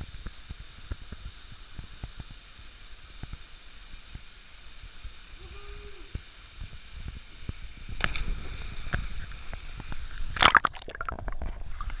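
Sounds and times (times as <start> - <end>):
water sloshing and gurgling: 7.6 - 12.0
loud splash: 10.3 - 11.4.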